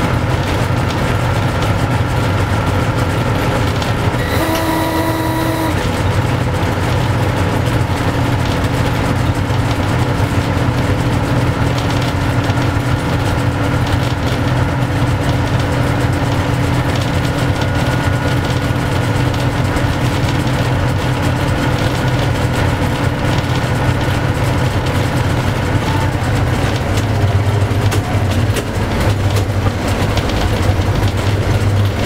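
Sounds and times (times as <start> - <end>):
train wheels rumbling on rail: 0.0 - 32.0
train horn blast: 4.1 - 6.7.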